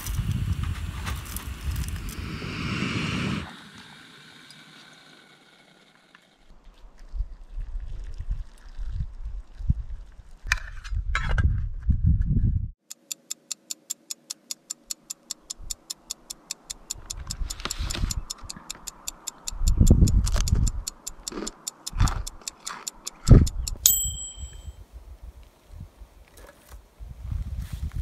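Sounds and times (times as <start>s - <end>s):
clock ticking: 12.8s - 24.6s
timer ding: 20.5s - 24.8s.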